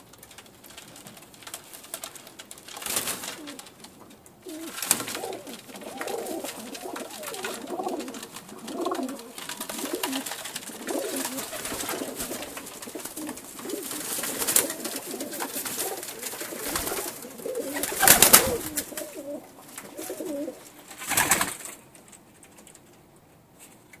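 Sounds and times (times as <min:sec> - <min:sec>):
wing flapping: 0:00.0 - 0:23.0
pigeons cooing: 0:03.2 - 0:21.3.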